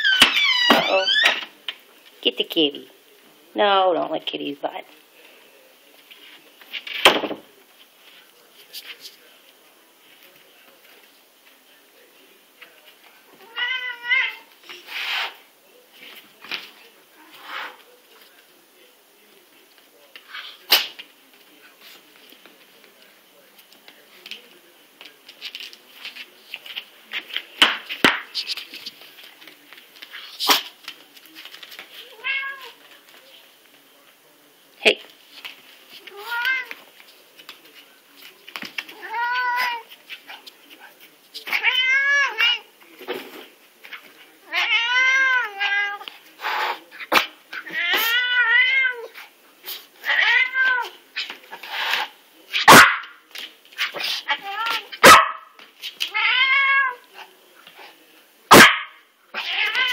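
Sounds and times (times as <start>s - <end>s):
cat yowling: 0.0s - 1.4s, 44.5s - 46.0s, 47.6s - 49.1s, 50.0s - 50.9s, 56.1s - 57.0s, 59.4s - 59.9s
cat hissing: 13.4s - 15.5s, 17.2s - 17.8s, 30.2s - 30.8s, 44.5s - 52.8s
dog paws clicking on floor: 21.0s - 33.8s, 35.0s - 41.6s.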